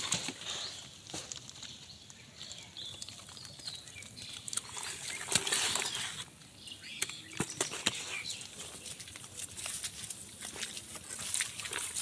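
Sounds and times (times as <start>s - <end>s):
hands rustling through wet grass: 7.5s - 12.0s.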